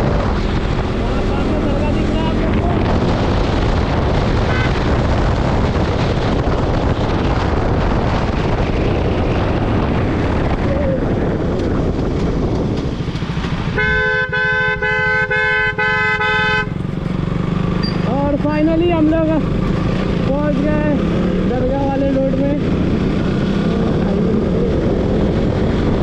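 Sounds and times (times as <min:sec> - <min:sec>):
traffic noise: 0:00.0 - 0:26.0
wind: 0:00.0 - 0:26.0
vehicle horn honking: 0:04.5 - 0:04.8, 0:13.8 - 0:16.8.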